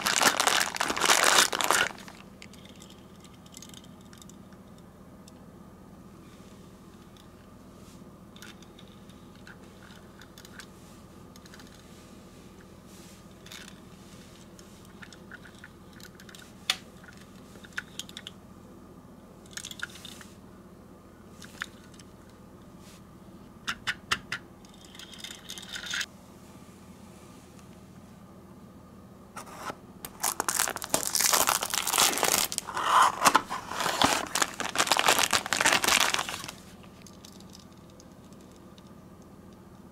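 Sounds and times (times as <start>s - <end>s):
packaging rustling: 0.0s - 2.3s, 30.1s - 37.4s.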